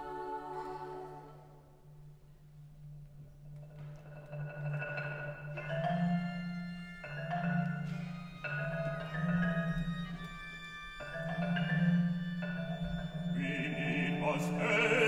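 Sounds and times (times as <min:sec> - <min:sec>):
orchestral music: 0:05.8 - 0:15.0.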